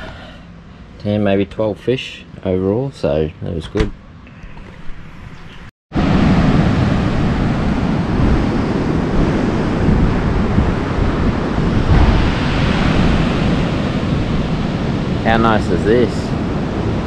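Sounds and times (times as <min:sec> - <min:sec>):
surf breaking on beach: 0:06.0 - 0:17.0
wind buffeting microphone: 0:06.0 - 0:17.0.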